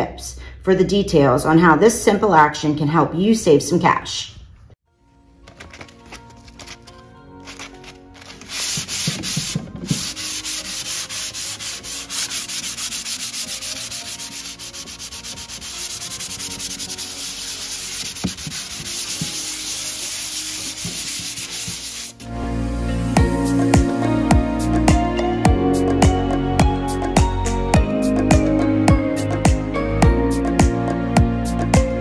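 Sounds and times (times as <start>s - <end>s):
sandpaper sanding wood: 7.4s - 22.2s.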